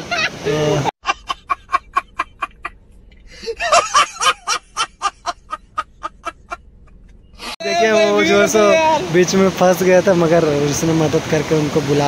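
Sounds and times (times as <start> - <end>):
people laughing: 0.0 - 6.6.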